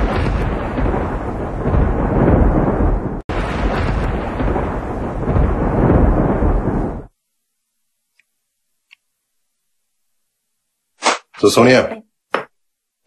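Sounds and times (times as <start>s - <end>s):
deep rumbling boom: 0.0s - 7.1s.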